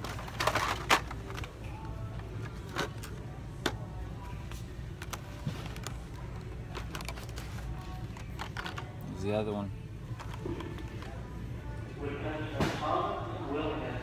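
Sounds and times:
plastic packs clattering on metal hooks: 0:00.0 - 0:03.9
faint background music: 0:00.0 - 0:14.0.

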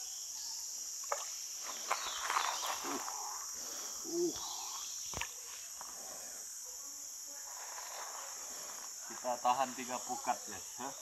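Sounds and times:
high-pitched insect chorus: 0:00.0 - 0:11.0.

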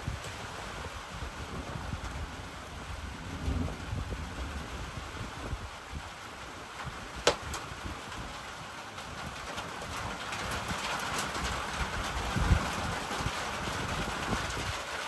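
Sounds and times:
rain falling on a roof: 0:00.0 - 0:15.0
wood stove fire crackle: 0:05.9 - 0:15.0.

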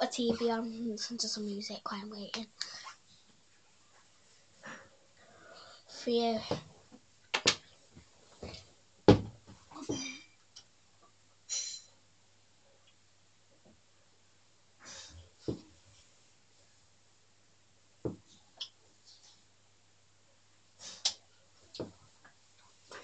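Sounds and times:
handling knocks and thumps: 0:08.4 - 0:10.2.

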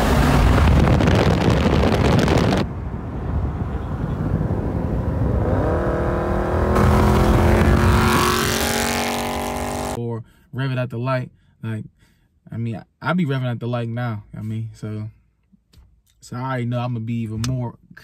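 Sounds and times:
car engine revving at full throttle: 0:00.0 - 0:10.0.

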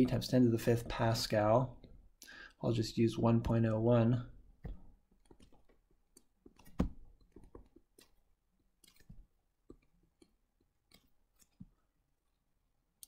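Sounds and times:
stylus tapping tablet screen: 0:04.6 - 0:11.8.

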